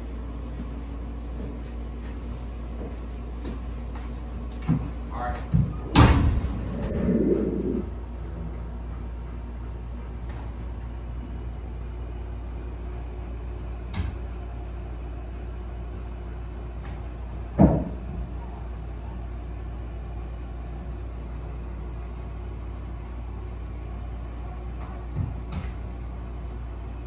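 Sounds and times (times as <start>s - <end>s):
steady low rumble: 5.4s - 9.9s
heavy thump: 5.6s - 7.9s.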